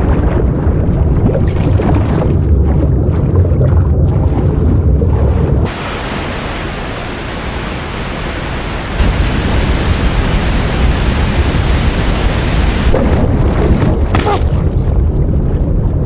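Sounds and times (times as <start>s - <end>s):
muffled underwater rumble: 0.0s - 16.0s
waterfall rushing into pool: 5.7s - 13.2s.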